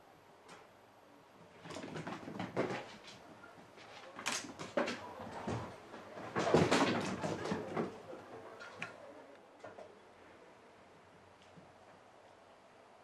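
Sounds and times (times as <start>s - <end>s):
knocks and thumps on hard floor: 1.6s - 3.2s, 4.4s - 8.0s.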